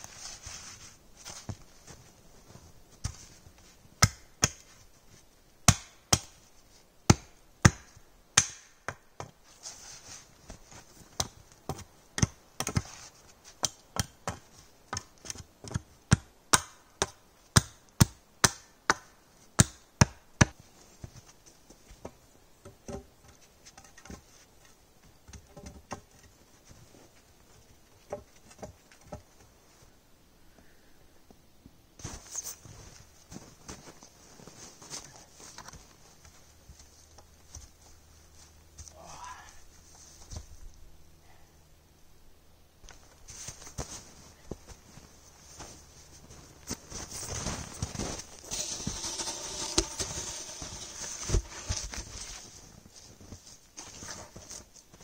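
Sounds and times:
hatchet striking wood: 5.7s - 6.3s, 7.1s - 9.0s.

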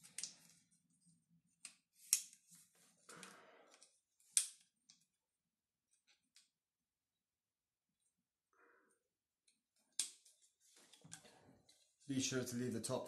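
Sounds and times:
plastic clicks and snaps: 0.0s - 0.6s.

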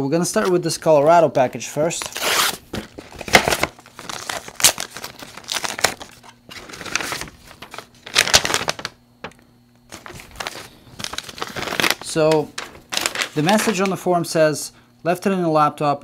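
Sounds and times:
envelope and papers crinkling: 1.8s - 14.1s.

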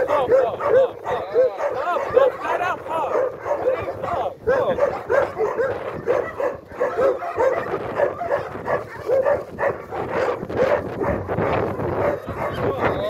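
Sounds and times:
dog whining and yelping: 3.1s - 11.2s.

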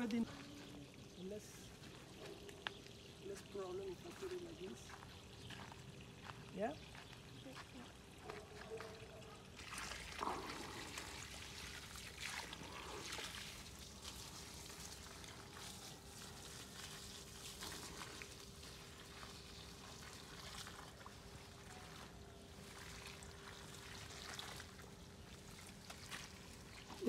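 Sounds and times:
water splashing: 8.3s - 27.0s
water pouring onto soil: 9.5s - 27.0s.

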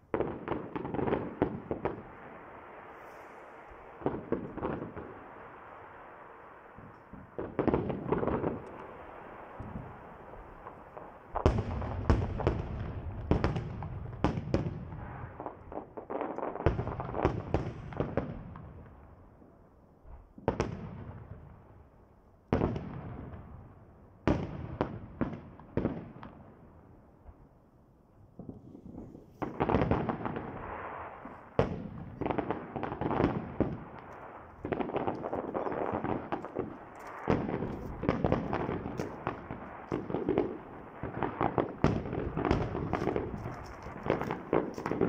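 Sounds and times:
firework shells bursting: 28.4s - 45.0s.

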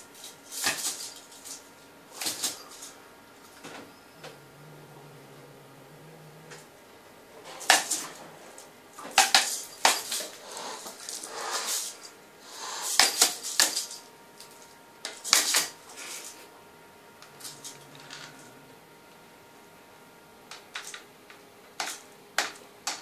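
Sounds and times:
cat hissing and spitting: 10.4s - 13.1s.

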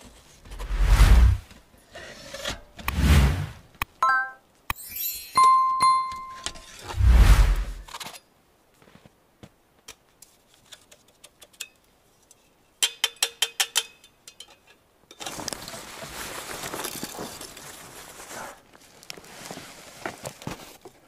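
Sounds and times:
rustling and crunching handling: 15.1s - 21.0s.

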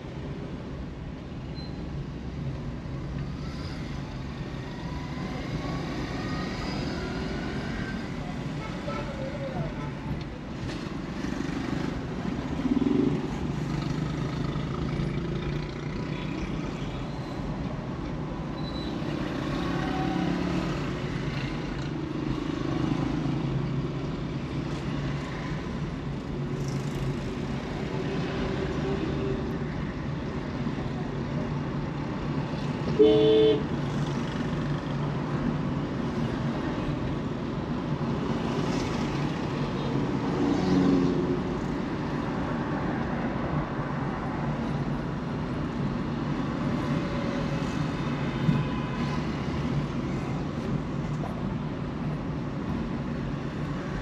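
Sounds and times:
car engine and tyre rumble: 0.0s - 54.0s
vehicle horn honk: 33.0s - 33.6s.

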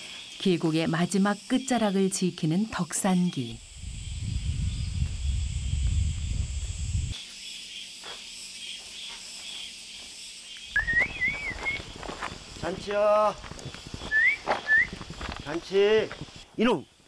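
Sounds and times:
insects buzzing: 0.0s - 17.0s
rising wavering whistle: 10.8s - 11.9s, 14.1s - 15.0s.

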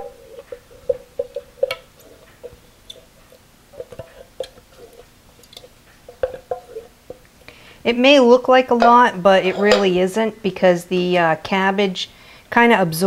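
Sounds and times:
soup scraped from a can: 0.0s - 7.2s.

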